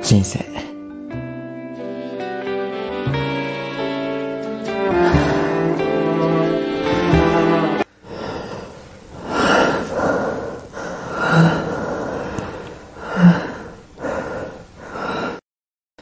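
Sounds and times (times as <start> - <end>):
man gasping for air: 8.0 - 15.4.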